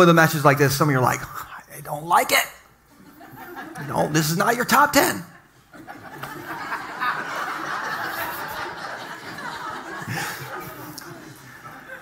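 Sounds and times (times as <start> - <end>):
crowd laughing: 2.9 - 12.0.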